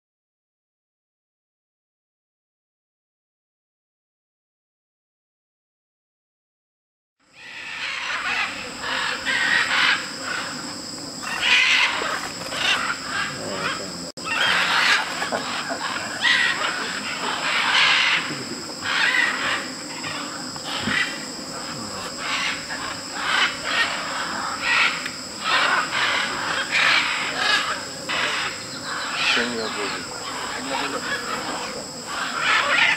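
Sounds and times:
high-pitched insect drone: 7.2 - 32.9
macaws squawking and screeching: 7.3 - 32.9.

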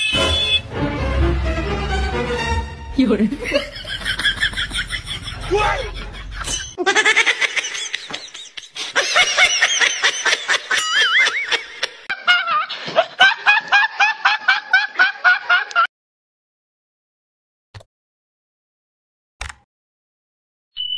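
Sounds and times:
boy laughing uncontrollably: 3.4 - 15.9.

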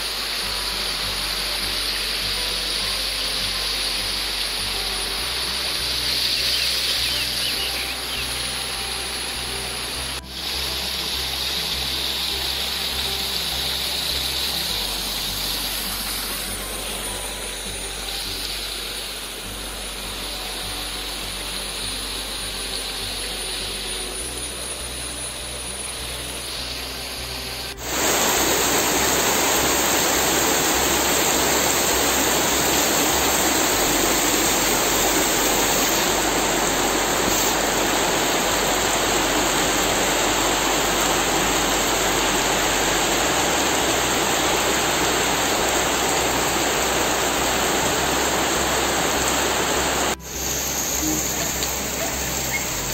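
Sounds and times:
heavy downpour: 0.0 - 52.9
stream running over rocks: 0.0 - 52.9
rain falling on trees: 27.8 - 52.9.

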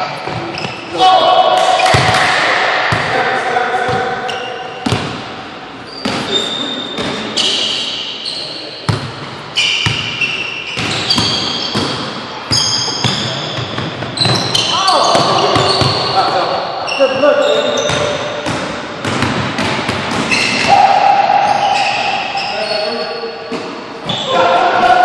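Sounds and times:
sneakers squeaking: 0.0 - 3.1, 3.7 - 25.0
players' voices: 0.0 - 8.9, 14.4 - 18.9.

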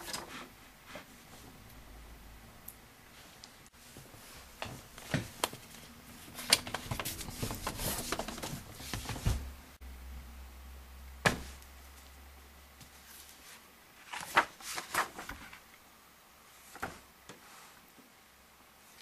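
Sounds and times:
books knocking and scraping: 3.9 - 9.6, 11.2 - 11.6.

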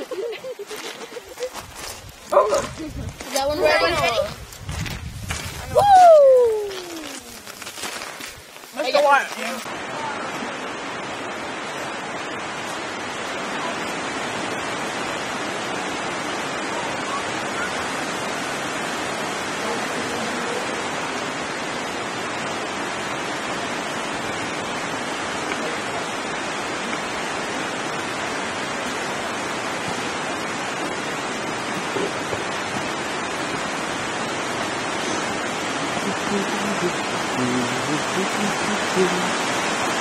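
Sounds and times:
creek rushing over rapids: 0.0 - 40.0
faint voices: 36.0 - 39.4.

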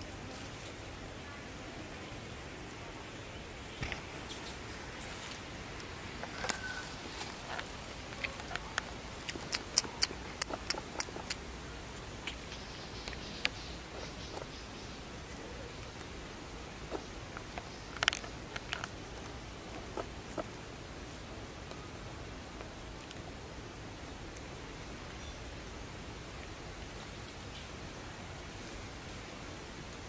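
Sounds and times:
faint steady hiss: 0.0 - 30.0
nails scrabbling on tree bark: 5.8 - 11.4, 16.9 - 20.5.

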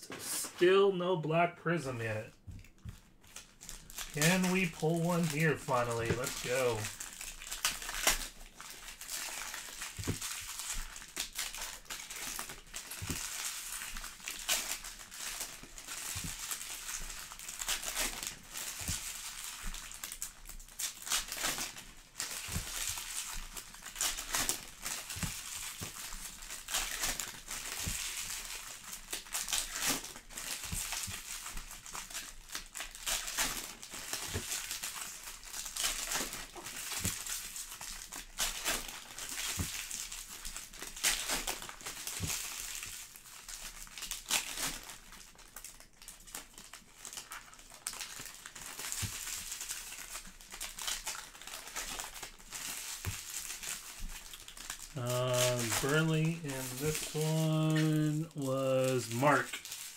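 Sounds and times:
foil wrappers crinkling: 1.8 - 59.9
cards being handled: 4.1 - 7.0.

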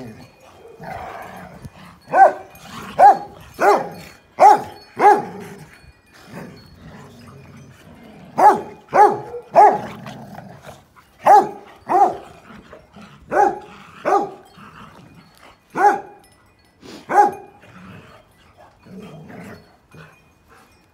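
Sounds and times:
dog barking: 2.1 - 5.3, 8.4 - 9.9, 11.2 - 12.2, 13.3 - 14.4, 15.8 - 16.1, 17.1 - 17.4
dog growling: 9.7 - 10.9, 17.6 - 20.2.

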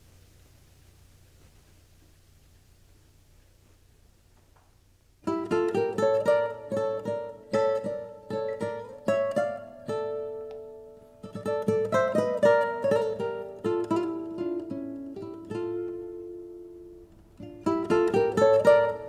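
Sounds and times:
plucked guitar-like melody: 5.2 - 19.0.

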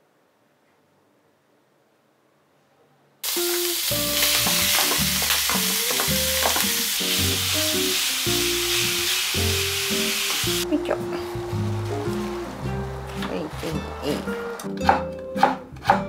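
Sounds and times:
meat sizzling in a frying pan: 3.2 - 10.7
background music: 3.2 - 16.0.

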